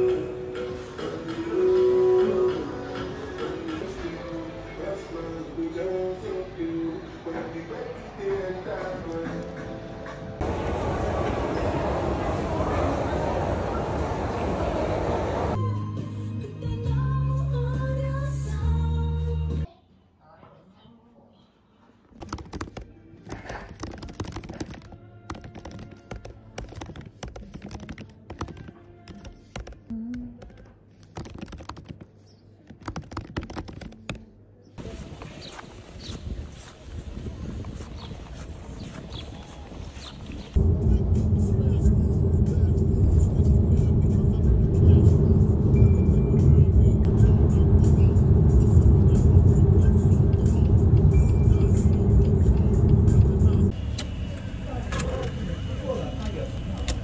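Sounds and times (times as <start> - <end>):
soft background music: 21.0 - 34.8
rapid clicking and tapping: 22.2 - 32.1, 32.7 - 34.2
road and engine rumble in car: 40.5 - 57.0.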